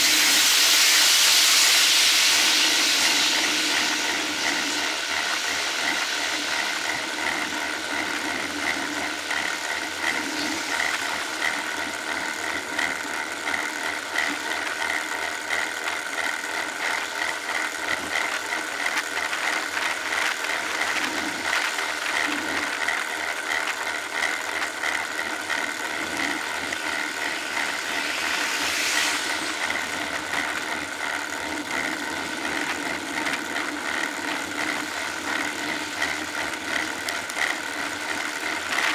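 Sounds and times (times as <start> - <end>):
bicycle whirring hum: 0.0 - 38.9.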